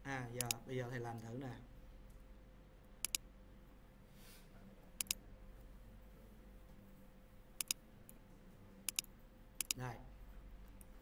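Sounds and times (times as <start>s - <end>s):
faint electrical hum: 0.0s - 11.0s
mouse button clicks: 7.6s - 7.8s, 8.9s - 9.8s.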